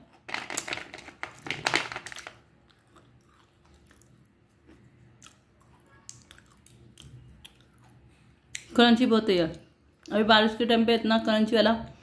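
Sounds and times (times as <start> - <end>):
person chewing crunchy food: 2.6 - 8.1.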